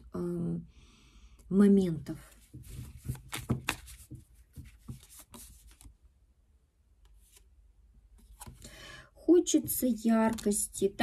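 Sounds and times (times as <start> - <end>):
cards being shuffled: 2.3 - 5.9, 8.2 - 8.6.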